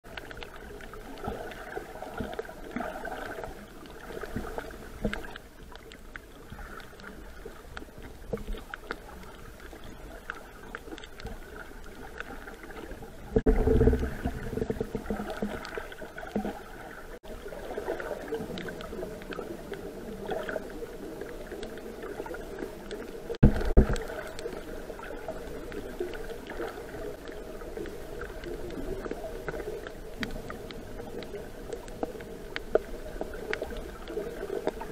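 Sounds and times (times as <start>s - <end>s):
underwater water noise: 0.0s - 34.9s.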